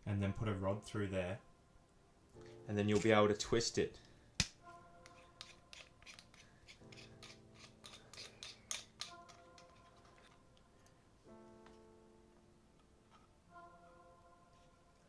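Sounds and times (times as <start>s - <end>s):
soft background music: 0.0s - 15.0s
clicks and scrapes of unscrewing: 5.0s - 10.4s.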